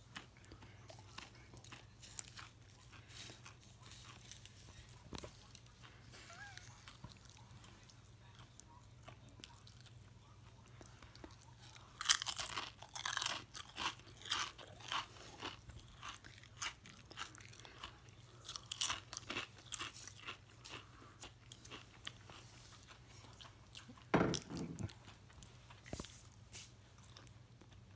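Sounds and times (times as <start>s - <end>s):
chips crunched and chewed: 0.3s - 7.6s, 10.8s - 23.5s.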